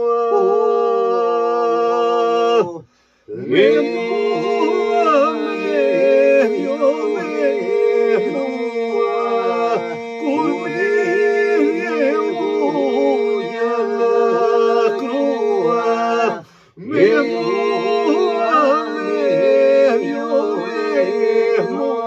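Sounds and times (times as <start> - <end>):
man singing ornamented melody: 0.0 - 22.0.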